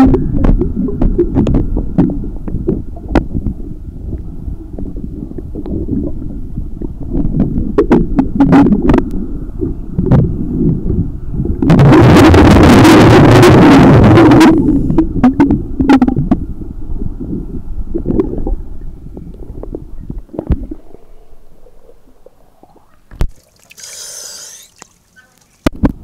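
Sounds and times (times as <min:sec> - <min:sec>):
underwater rumble of water: 0:00.0 - 0:26.0
diver exhaling bubbles: 0:17.1 - 0:25.0.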